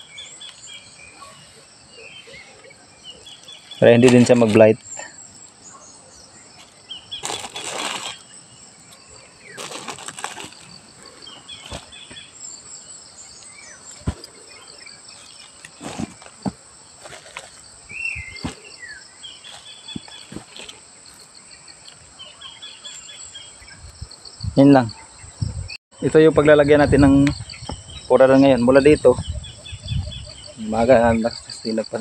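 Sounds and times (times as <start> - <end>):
bird chirps: 0.0 - 9.8, 17.9 - 20.7, 26.6 - 31.9
insects chirring: 0.0 - 32.0.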